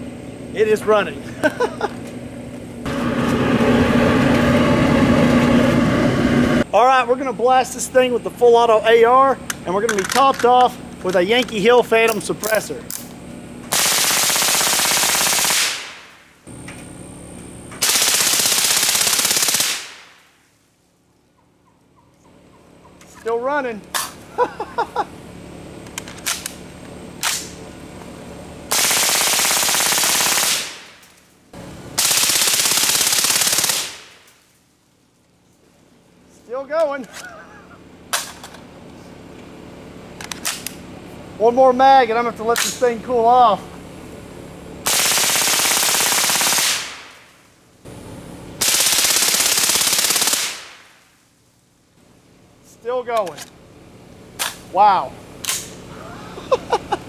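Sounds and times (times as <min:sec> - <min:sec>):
suppressed rifle automatic bursts: 0:13.7 - 0:16.1, 0:17.8 - 0:20.1, 0:28.7 - 0:31.1, 0:32.0 - 0:34.3, 0:44.8 - 0:47.2, 0:48.6 - 0:50.8.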